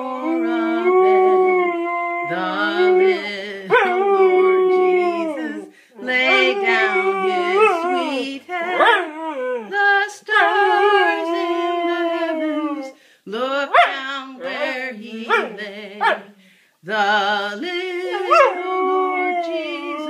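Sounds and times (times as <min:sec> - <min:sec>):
dog howling: 0:00.1 - 0:13.0, 0:18.0 - 0:20.0.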